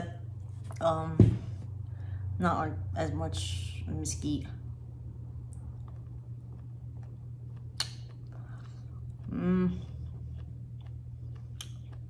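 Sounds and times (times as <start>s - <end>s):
steady low hum: 0.0s - 12.0s
woman chewing: 5.5s - 12.0s
clicking mouth sounds: 7.0s - 12.0s
woman humming mm: 9.2s - 10.0s.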